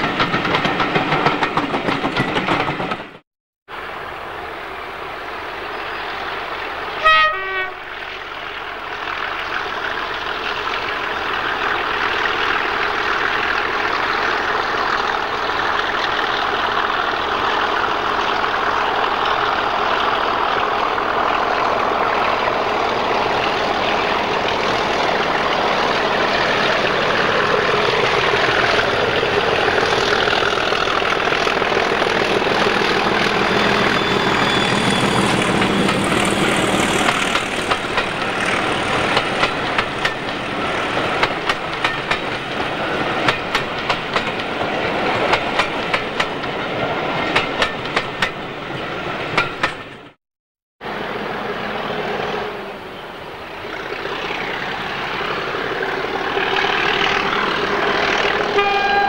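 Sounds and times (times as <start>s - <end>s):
train wheels clicking over rail joints: 0.0s - 3.2s, 9.8s - 50.2s
diesel locomotive engine running: 3.8s - 48.4s, 50.8s - 59.0s.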